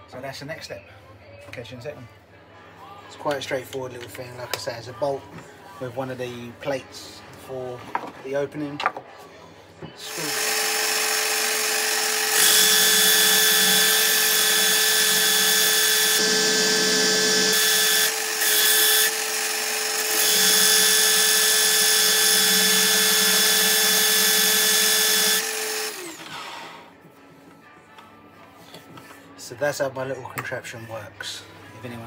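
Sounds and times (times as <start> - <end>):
drill motor winding down: 10.0 - 26.9
pillar drill running: 10.0 - 26.9.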